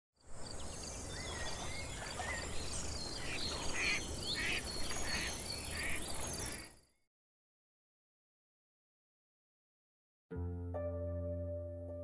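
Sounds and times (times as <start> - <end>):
birds chirping and calling: 0.5 - 6.8.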